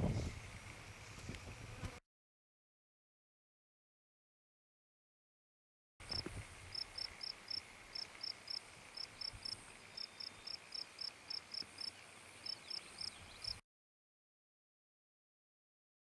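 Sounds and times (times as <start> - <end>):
insect chirping: 6.0 - 13.6.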